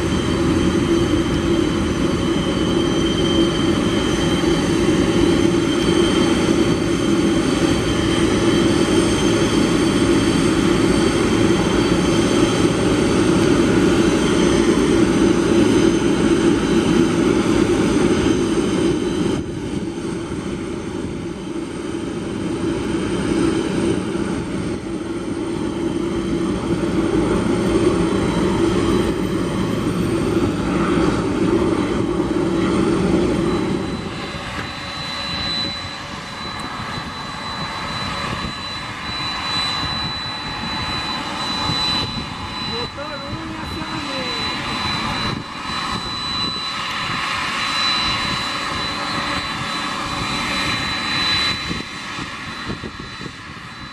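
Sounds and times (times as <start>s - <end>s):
high-pitched engine whines: 0.0s - 53.9s
jet engines rumbling: 0.0s - 53.9s.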